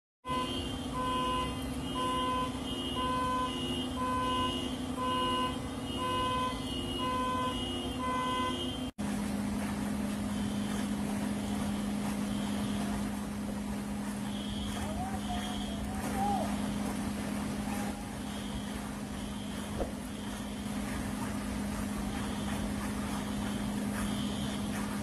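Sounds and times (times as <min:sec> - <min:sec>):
car alarm beeping: 0:00.2 - 0:08.9, 0:14.0 - 0:17.0, 0:17.6 - 0:25.0.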